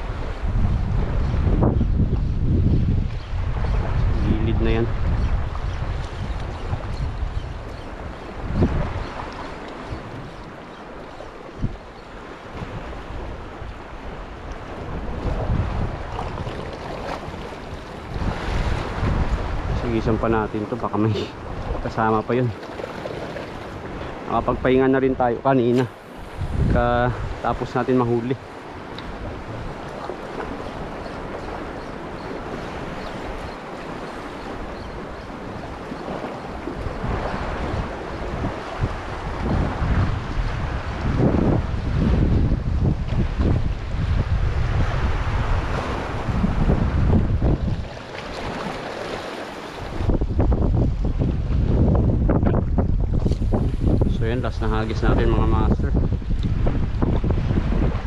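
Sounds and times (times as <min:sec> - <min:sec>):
wind buffeting microphone: 0:00.0 - 0:58.0
sea water washing against rocks: 0:12.4 - 0:58.0.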